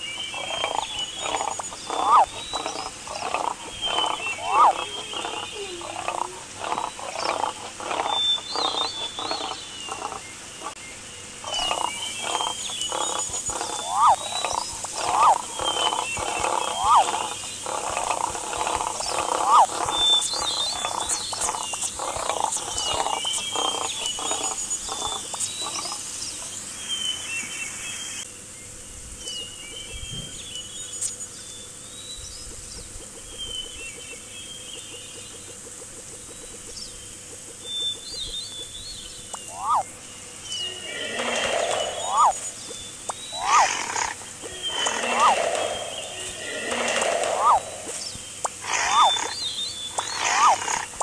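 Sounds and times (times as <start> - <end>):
cartoon animal noises: 0.2 - 10.8, 11.4 - 26.0, 39.4 - 39.9, 40.6 - 51.0.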